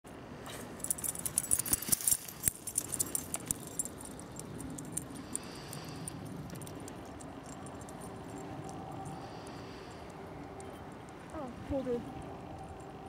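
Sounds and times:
low steady background noise: 0:00.1 - 0:13.0
dog leash clip jingling: 0:00.6 - 0:09.1.

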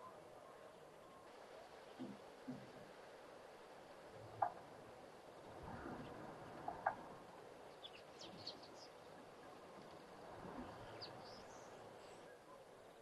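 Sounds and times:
small birds chirping: 0:06.7 - 0:13.0.

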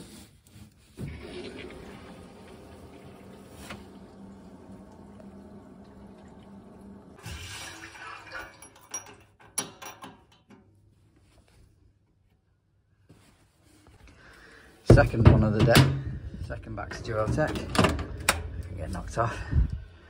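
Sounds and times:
water rushing in pipes: 0:00.8 - 0:09.1
hiss of water: 0:01.0 - 0:08.2.

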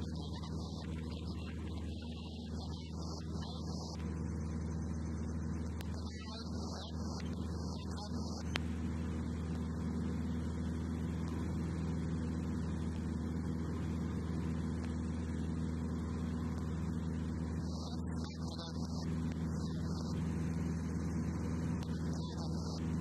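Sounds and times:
light aircraft engine droning: 0:00.0 - 0:23.0.

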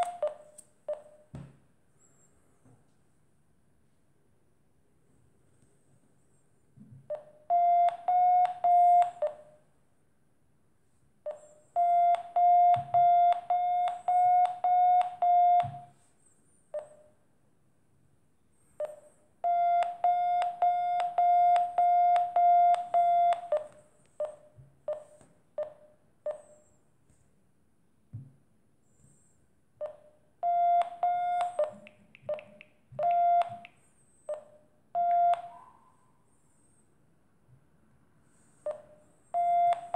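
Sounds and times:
phone app beeping: 0:00.0 - 0:01.2, 0:07.1 - 0:09.6, 0:11.3 - 0:15.8, 0:18.8 - 0:26.6, 0:29.8 - 0:33.7, 0:34.3 - 0:35.6
fingers tapping a phone: 0:00.0 - 0:01.3, 0:07.1 - 0:09.5, 0:11.3 - 0:15.9, 0:18.8 - 0:26.5, 0:29.8 - 0:35.6, 0:38.7 - 0:39.9.

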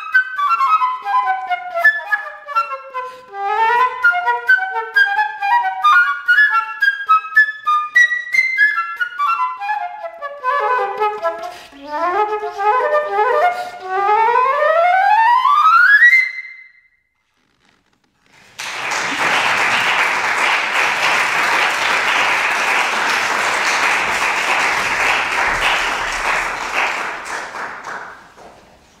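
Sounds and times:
flute playing fast run: 0:00.0 - 0:16.5
audience applauding: 0:18.3 - 0:29.0.

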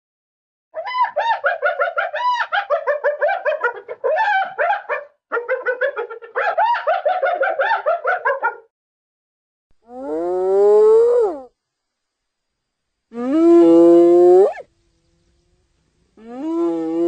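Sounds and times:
hyena giggling yelps: 0:00.8 - 0:08.6.

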